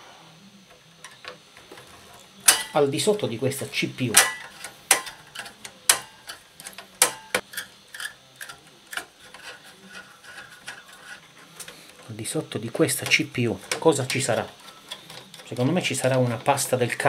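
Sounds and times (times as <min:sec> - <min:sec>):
faint ticking and rubbing: 0:03.8 - 0:17.0.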